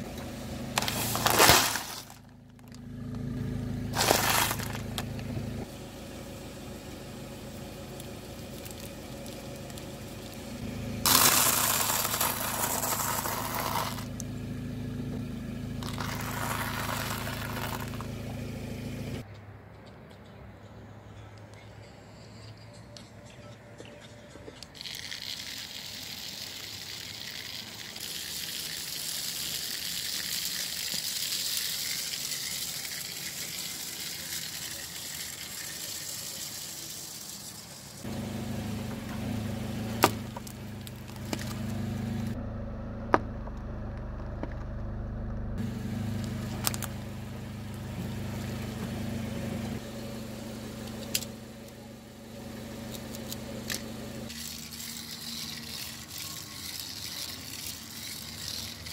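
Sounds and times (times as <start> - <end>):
car engine idling: 0.0 - 19.3, 25.7 - 58.9.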